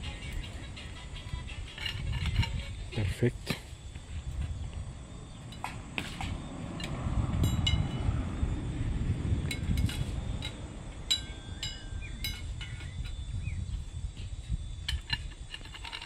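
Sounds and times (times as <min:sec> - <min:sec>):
steel rebar clinking: 0:00.1 - 0:03.7, 0:05.5 - 0:08.1, 0:09.4 - 0:16.0
low rumble: 0:04.0 - 0:15.0.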